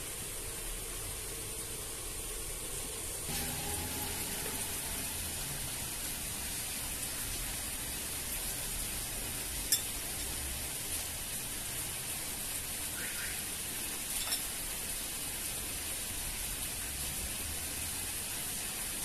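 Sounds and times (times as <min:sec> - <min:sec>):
steady background hiss: 0:00.0 - 0:19.0
porcelain clink: 0:09.6 - 0:10.4, 0:14.1 - 0:14.5.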